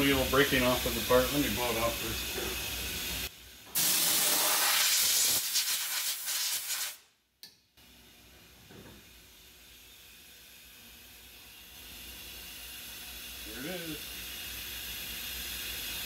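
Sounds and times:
air blow gun hissing: 0:00.0 - 0:07.0.

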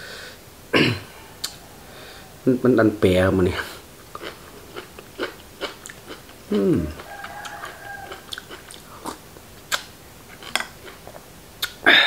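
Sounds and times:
distant rooster crowing: 0:01.2 - 0:02.7, 0:06.7 - 0:08.7
wet mouth clicks: 0:01.4 - 0:01.6, 0:08.2 - 0:09.9, 0:11.6 - 0:11.8
chewing and biting: 0:04.1 - 0:11.8.

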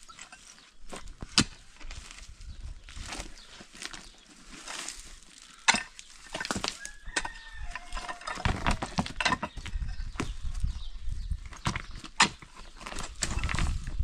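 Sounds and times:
stones scraping and shifting: 0:00.0 - 0:14.0
pickaxe striking stony ground: 0:00.9 - 0:01.6, 0:05.6 - 0:10.3, 0:11.6 - 0:13.7.

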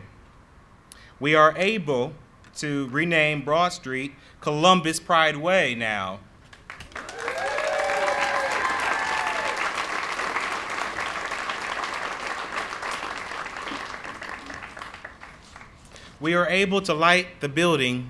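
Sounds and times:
crowd applauding: 0:06.5 - 0:16.1
cheers and whoops: 0:06.9 - 0:10.4.

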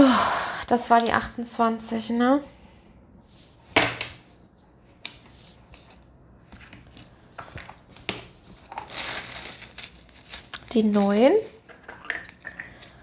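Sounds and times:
plastic bags crinkling: 0:07.8 - 0:13.0.

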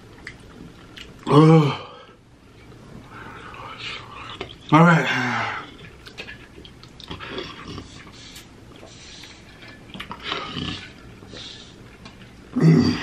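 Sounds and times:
man groaning: 0:01.3 - 0:02.0, 0:12.6 - 0:13.0.

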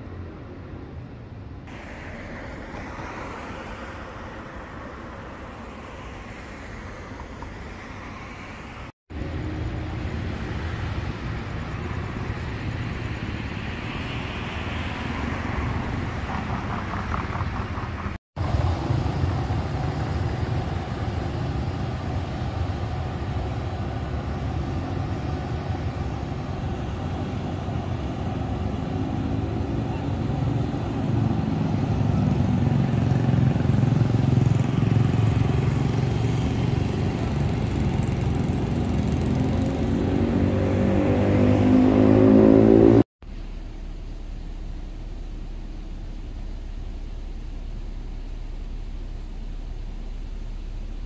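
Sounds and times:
cars passing: 0:00.0 - 0:51.0
low traffic rumble: 0:00.0 - 0:51.0.

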